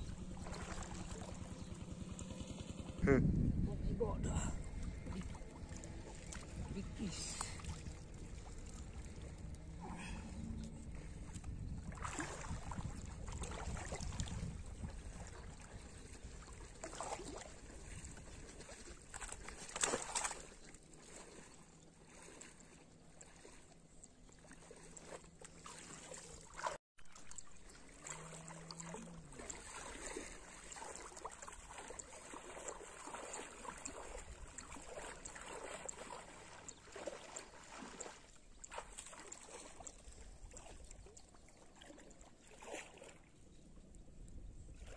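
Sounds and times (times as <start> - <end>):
water splashing and sloshing: 0.0 - 2.9, 3.8 - 44.9
loud splash: 0.4 - 1.4, 19.1 - 20.5, 28.8 - 39.6.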